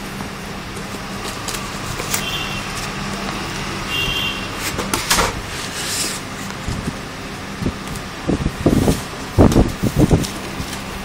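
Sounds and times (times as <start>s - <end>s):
steady background hum: 0.0s - 11.0s
foam and cardboard scraping: 4.4s - 7.0s.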